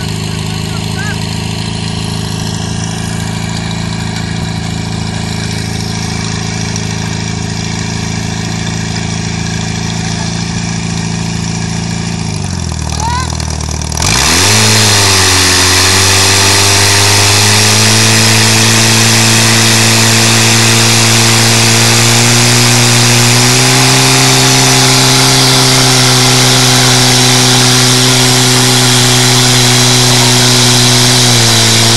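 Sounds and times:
pump engine running hard: 0:00.0 - 0:31.9.

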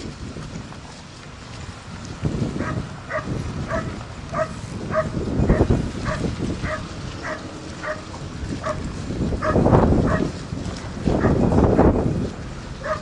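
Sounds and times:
dog barking in high yips: 0:02.6 - 0:05.2.

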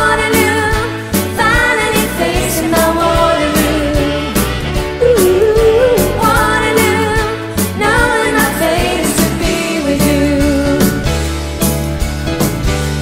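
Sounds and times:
women singing: 0:00.0 - 0:11.0
keyboards: 0:00.0 - 0:13.0
drum kit beat: 0:01.2 - 0:13.0
electric guitar: 0:03.2 - 0:08.2.

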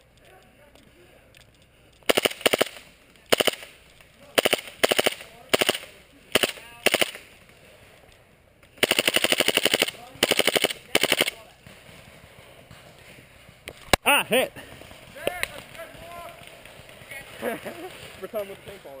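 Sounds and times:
airsoft rifle firing in bursts: 0:02.1 - 0:07.3, 0:08.8 - 0:11.7.

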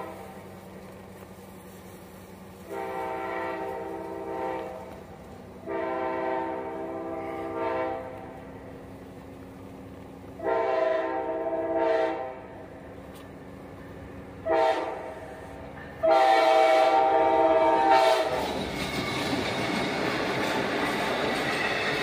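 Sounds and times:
locomotive horn blasts: 0:00.0 - 0:00.5, 0:02.6 - 0:05.0, 0:05.6 - 0:08.4, 0:10.4 - 0:12.6, 0:14.4 - 0:15.4, 0:16.0 - 0:18.4
train passing over crossing: 0:00.0 - 0:22.0.

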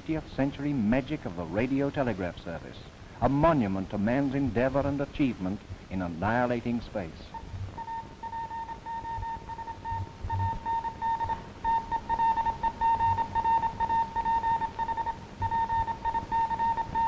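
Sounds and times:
morse code beeping: 0:07.8 - 0:17.0.

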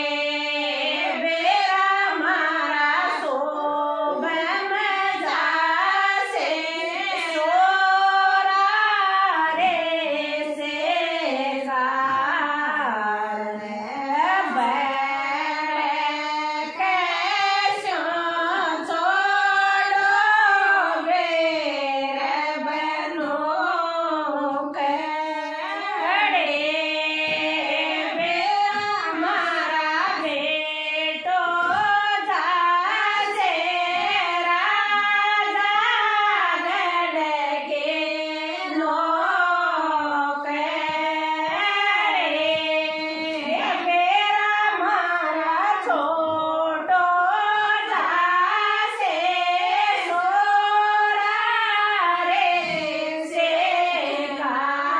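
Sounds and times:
women singing folk song: 0:00.0 - 0:54.9.

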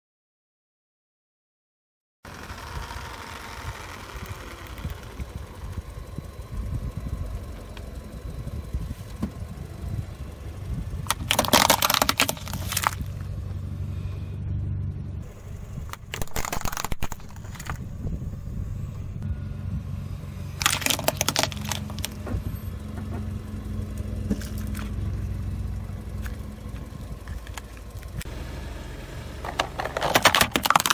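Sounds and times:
car engine rumble: 0:02.2 - 0:30.9
plastic toy cracking under tyre: 0:11.0 - 0:13.2, 0:15.8 - 0:17.9, 0:20.6 - 0:22.2, 0:29.4 - 0:30.9.

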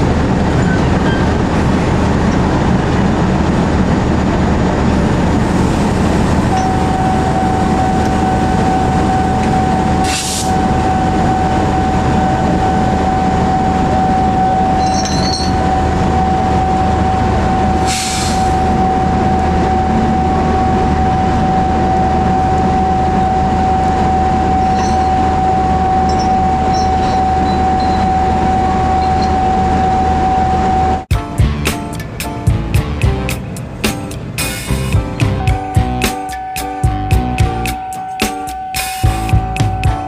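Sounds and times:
high whine: 0:00.0 - 0:40.0
locomotive idling rumble: 0:00.0 - 0:40.0
short hiss: 0:17.8 - 0:18.5.

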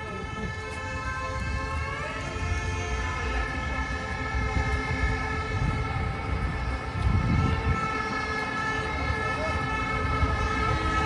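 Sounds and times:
low street rumble: 0:00.0 - 0:11.0
siren steady multi-tone: 0:00.0 - 0:11.0.

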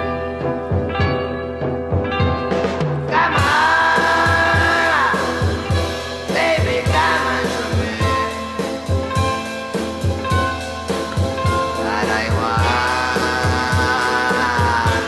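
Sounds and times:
steady drum beat: 0:01.9 - 0:15.0
person singing: 0:03.0 - 0:08.9, 0:11.5 - 0:15.0.

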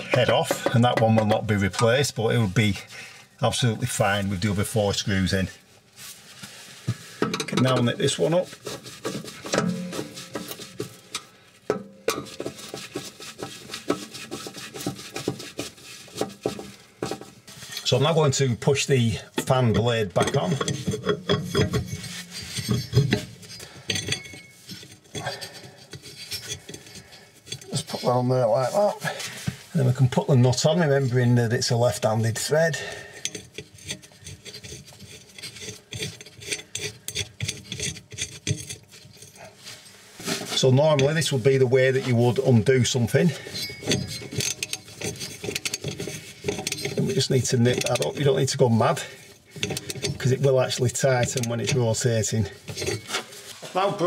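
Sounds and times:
glove rubbing: 0:08.0 - 0:11.1, 0:12.3 - 0:18.0
screwdriver scraping metal screw: 0:20.2 - 0:27.7, 0:33.2 - 0:39.4, 0:43.4 - 0:48.7, 0:49.4 - 0:53.2.

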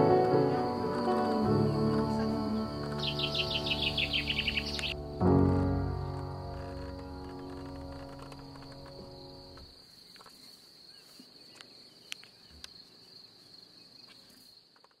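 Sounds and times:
background music chord: 0:00.0 - 0:09.6
high-pitched insect trill: 0:00.0 - 0:11.0.

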